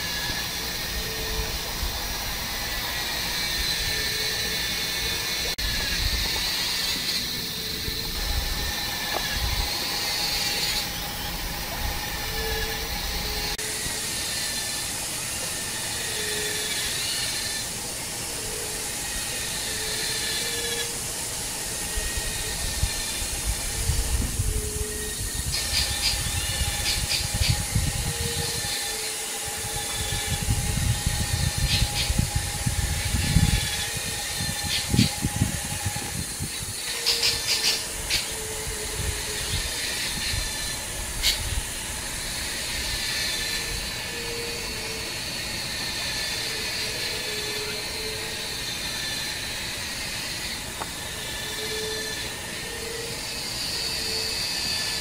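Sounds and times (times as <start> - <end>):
thin insect-like tones: 0.0 - 55.0.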